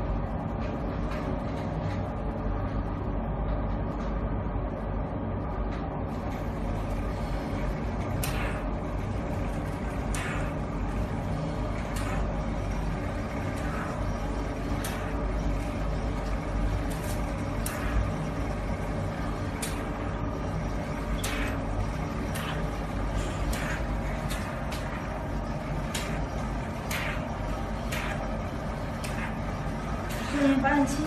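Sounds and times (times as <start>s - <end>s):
suction pump running: 6.4s - 31.0s.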